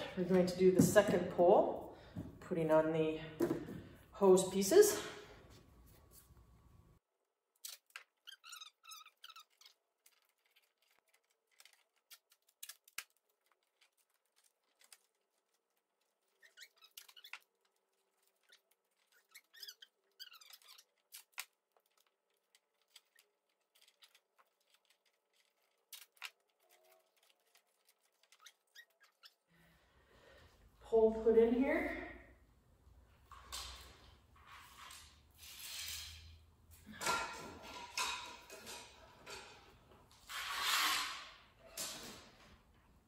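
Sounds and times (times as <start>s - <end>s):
duct tape squeaking and ripping: 7.6s - 29.4s.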